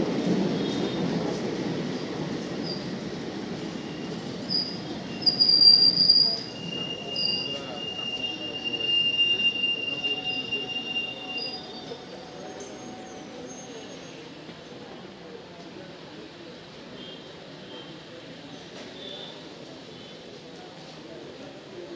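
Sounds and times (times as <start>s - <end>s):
train coaches rumbling past: 0.0s - 21.9s
brake squeal: 3.8s - 14.3s.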